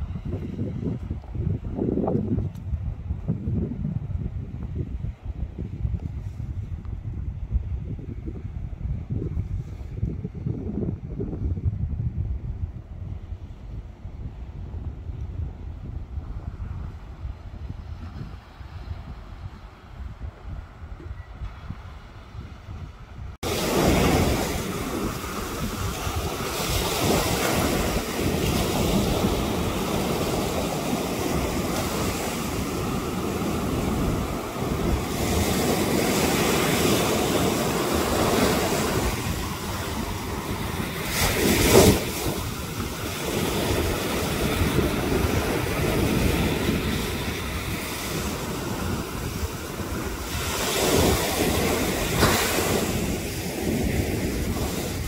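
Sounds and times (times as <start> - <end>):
wind buffeting microphone: 0.0 - 55.0
waves breaking on beach: 23.4 - 55.0.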